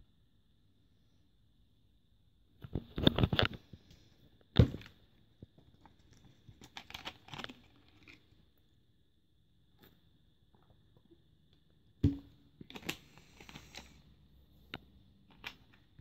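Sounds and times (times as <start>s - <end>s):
crackling rustling handling noise: 5.8s - 8.4s.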